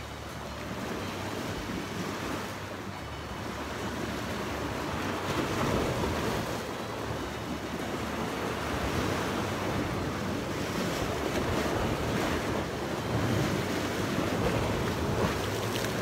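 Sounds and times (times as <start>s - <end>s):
sea waves washing against rocks: 3.4s - 16.0s.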